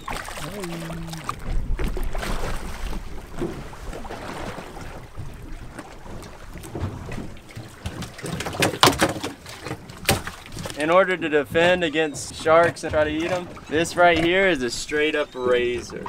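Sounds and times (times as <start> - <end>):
wind buffeting microphone: 0.0 - 8.5
splashes and knocks: 0.0 - 14.9
water sloshing beside boat: 0.0 - 16.0.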